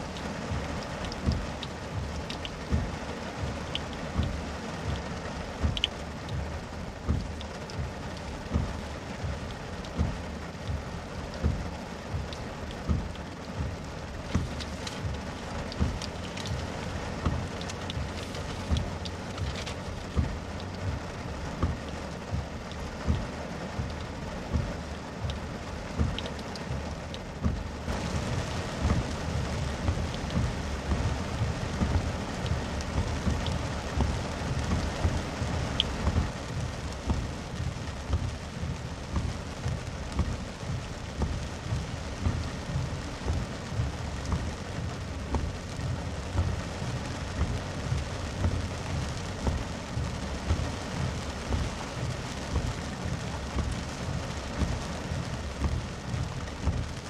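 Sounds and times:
heavy rain on car roof: 0:00.0 - 0:57.0.

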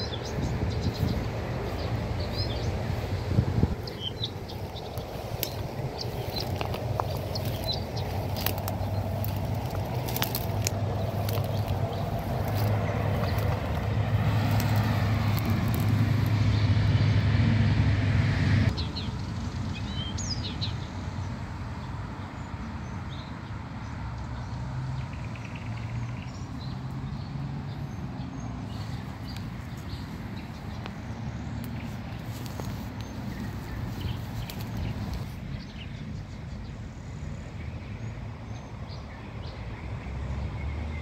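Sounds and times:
nightingale singing: 0:00.0 - 0:16.2
traffic hum: 0:00.0 - 0:41.0.

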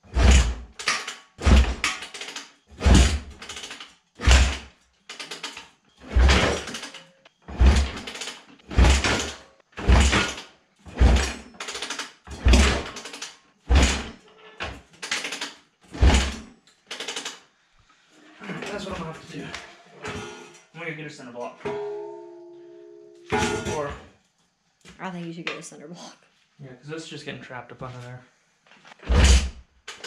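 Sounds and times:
motorcycle kick-start thuds: 0:00.2 - 0:14.1, 0:15.0 - 0:17.4.

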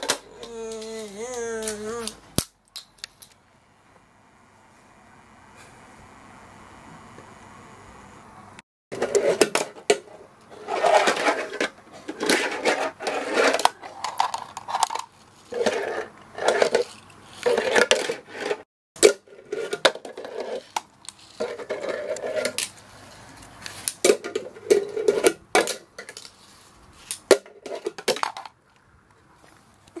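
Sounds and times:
fingerboard wheels rolling: 0:10.5 - 0:18.6, 0:19.3 - 0:25.5.

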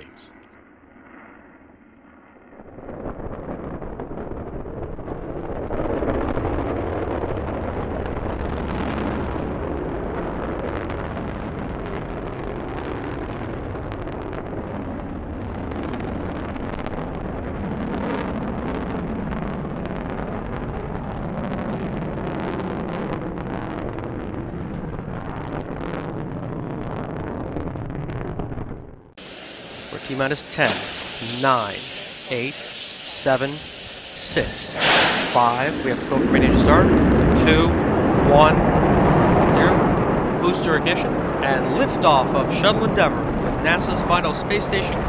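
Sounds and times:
rocket engines rumbling: 0:00.0 - 0:45.0.

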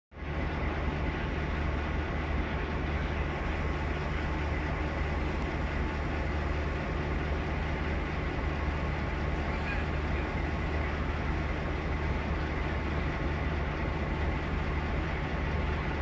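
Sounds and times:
diesel locomotive engine idling: 0:00.1 - 0:16.0.

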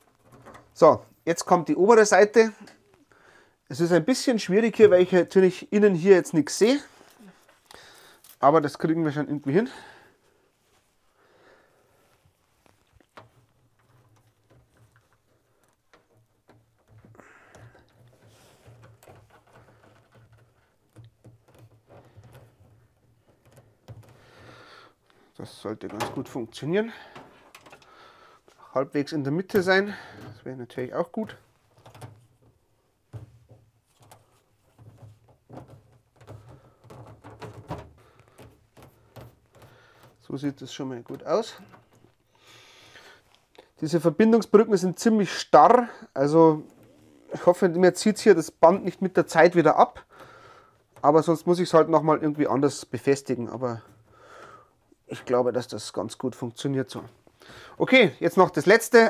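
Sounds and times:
soft handling taps and rubbing: 0:12.0 - 0:24.5, 0:29.5 - 0:42.3.

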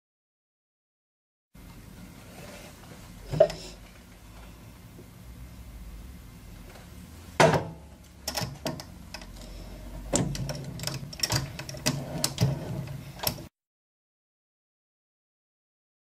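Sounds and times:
low machine hum: 0:01.6 - 0:13.5.

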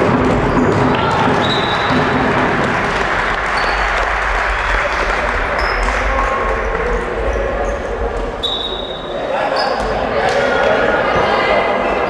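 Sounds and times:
din of spectators' voices: 0:00.0 - 0:12.0
shoes squeaking on wooden court: 0:00.2 - 0:02.2, 0:08.4 - 0:10.4.

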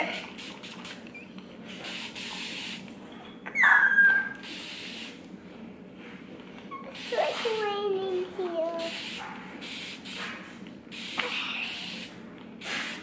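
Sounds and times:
spray bottle spritzing: 0:00.1 - 0:01.1, 0:01.8 - 0:02.8, 0:04.4 - 0:05.2, 0:06.9 - 0:07.7, 0:08.7 - 0:10.3, 0:10.9 - 0:13.0
child squealing: 0:03.4 - 0:04.4.

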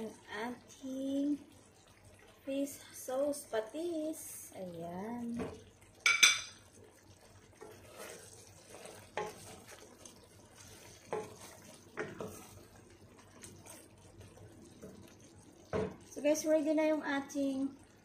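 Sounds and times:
faint sizzle: 0:00.0 - 0:18.0
spatula stirring in a pot: 0:03.6 - 0:18.0
spatula knocking on pot: 0:05.4 - 0:06.6.

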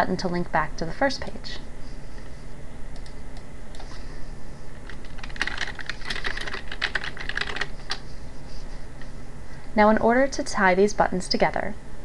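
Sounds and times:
computer keyboard typing: 0:04.8 - 0:08.0.

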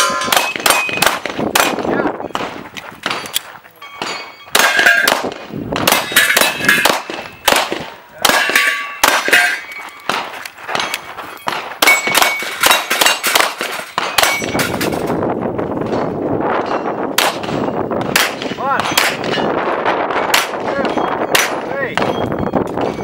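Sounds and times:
steel targets clanging: 0:00.0 - 0:01.1, 0:03.0 - 0:07.6, 0:08.2 - 0:15.1, 0:20.4 - 0:23.0
pistol shots: 0:00.0 - 0:03.4, 0:04.0 - 0:14.7, 0:17.2 - 0:19.4, 0:20.3 - 0:21.7.

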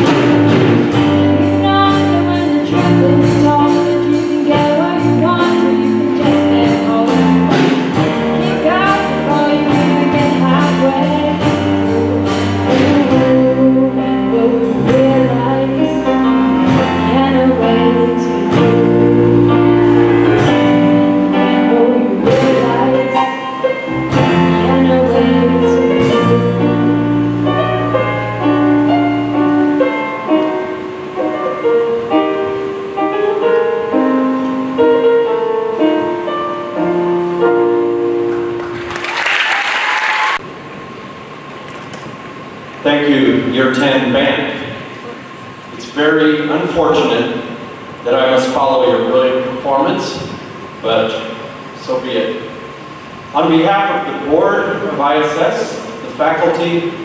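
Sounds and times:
drum kit: 0:00.0 - 0:32.4
electric bass: 0:00.0 - 0:35.0
keyboard: 0:00.0 - 0:39.2
woman singing: 0:01.1 - 0:07.7, 0:08.3 - 0:20.1, 0:21.2 - 0:23.6, 0:24.2 - 0:27.5
applause: 0:38.6 - 0:40.4.

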